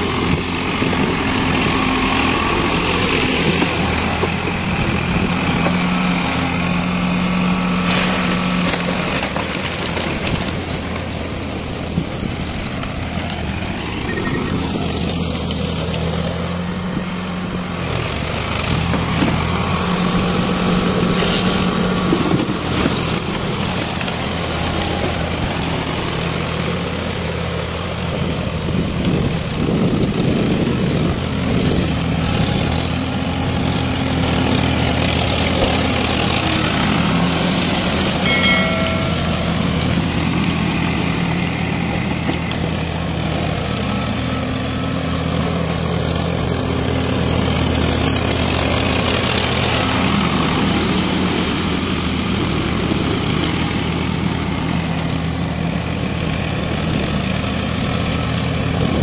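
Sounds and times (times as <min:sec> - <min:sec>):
diesel tractor engine running: 0:00.0 - 0:59.0
short high tone: 0:14.0 - 0:14.7, 0:38.2 - 0:40.0.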